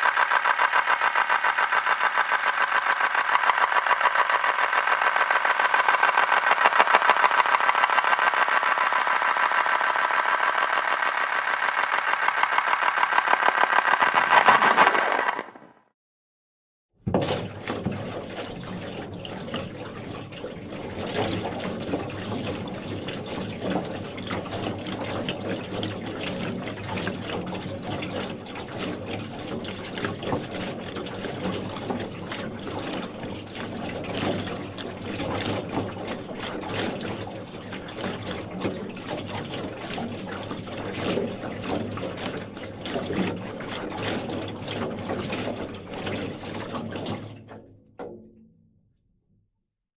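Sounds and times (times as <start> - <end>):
rushing crackling noise: 0.0 - 15.7.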